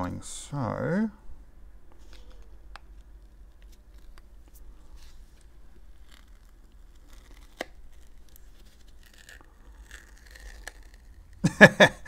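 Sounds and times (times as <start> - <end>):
person speaking: 0.0 - 1.3
plastic film crinkling and peeling: 1.9 - 11.5.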